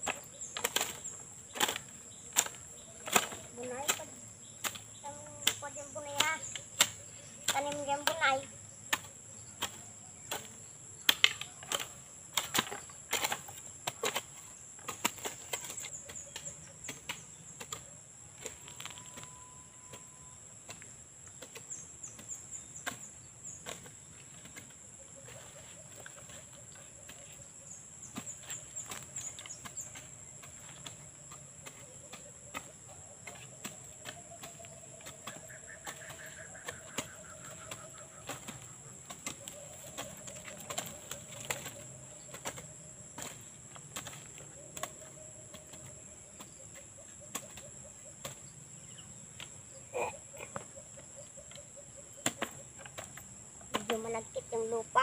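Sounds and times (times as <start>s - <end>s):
hoes chopping into soil: 0.0s - 51.5s, 52.1s - 55.0s
high insect drone: 22.5s - 55.0s.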